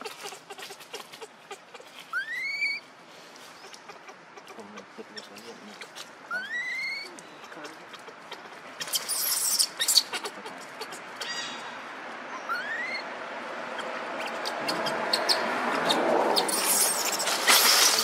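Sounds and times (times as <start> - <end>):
baby monkey squeaking: 0.0 - 2.9, 3.6 - 11.7, 12.4 - 13.1, 13.7 - 18.0
dry leaves rustling: 0.0 - 11.9, 14.2 - 18.0.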